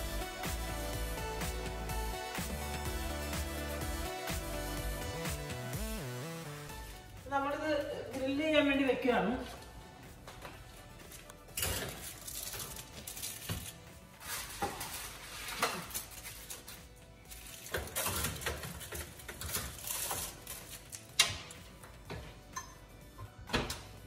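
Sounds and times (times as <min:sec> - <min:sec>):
metal baking trays scraping on racks: 0:14.2 - 0:16.7.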